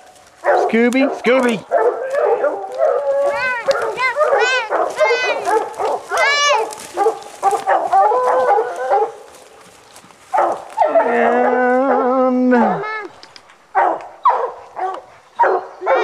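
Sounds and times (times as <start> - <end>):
hounds barking: 0.0 - 12.8, 13.6 - 16.0
hound bawling: 0.4 - 9.3, 10.3 - 13.0.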